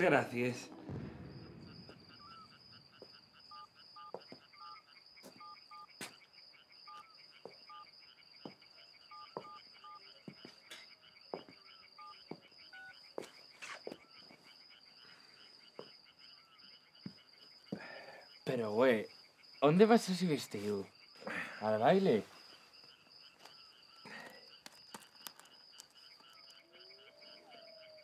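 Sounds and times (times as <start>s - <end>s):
high piping calls: 0.0s - 18.6s
crickets chirping: 0.0s - 28.0s
faint clicks: 24.6s - 26.6s.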